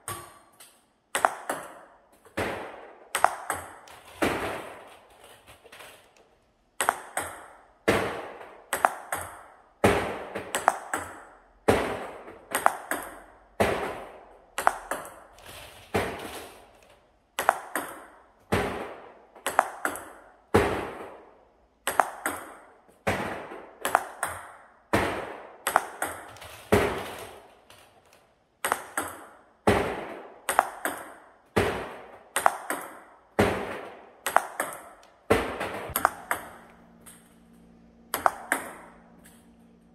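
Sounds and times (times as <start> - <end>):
table tennis ball clicks: 6.8 - 7.6, 8.7 - 9.5, 21.8 - 22.7, 28.0 - 29.4, 34.2 - 35.2, 35.9 - 37.4, 38.1 - 39.5.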